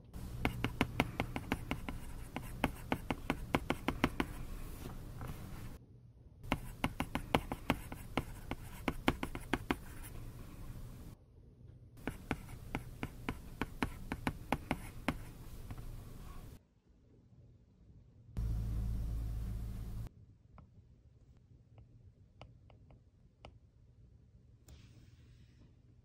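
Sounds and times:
stylus tapping on glass screen: 0.2s - 4.4s.

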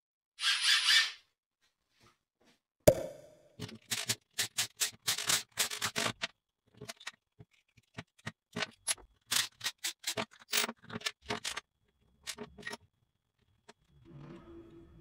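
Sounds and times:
tool parts clicking and clacking: 3.6s - 11.6s.

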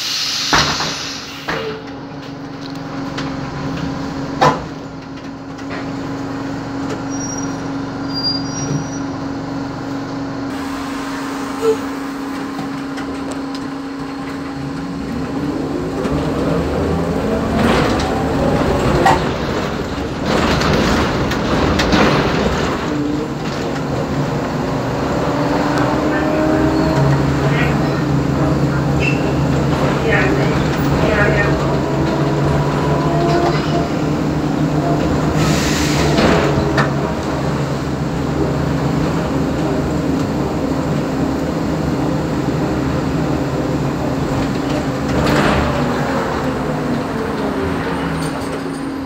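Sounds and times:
trolleybus electric hum: 0.0s - 49.0s
knocks and rattles: 17.0s - 24.4s.

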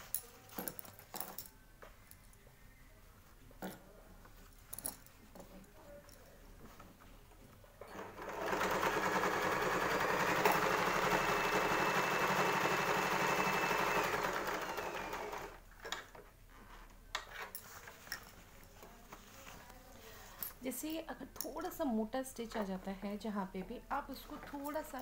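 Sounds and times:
sewing machine stitching: 7.8s - 15.6s.

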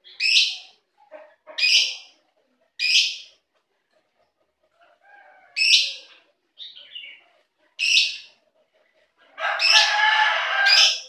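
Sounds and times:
lovebirds chattering: 0.0s - 4.1s, 5.6s - 10.0s
lovebirds shrieking: 9.4s - 11.0s.

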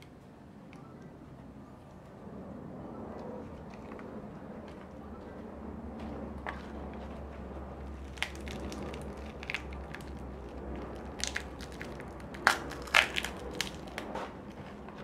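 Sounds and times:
low steady hum: 0.0s - 15.0s
food crunching and snapping: 7.8s - 14.7s.

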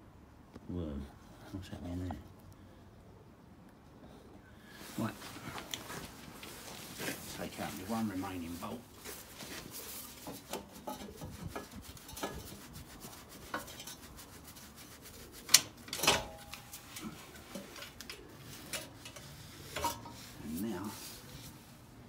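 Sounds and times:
metal clinks and rubbing: 9.8s - 21.4s
sharp metal clanks: 15.9s - 16.8s.

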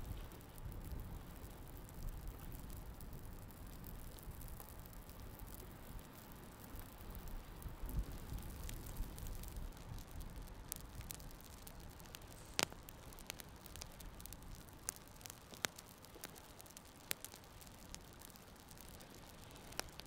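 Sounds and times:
campfire crackling: 0.0s - 20.0s
sharp pops from burning kindling: 0.0s - 20.0s
soft hiss: 0.0s - 20.0s.

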